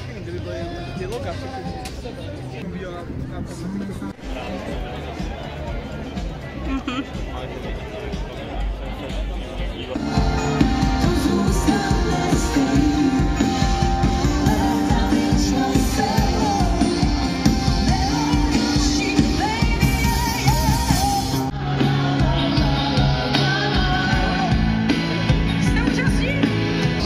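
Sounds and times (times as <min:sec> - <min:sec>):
pop-rock song with singer: 0:10.0 - 0:27.0.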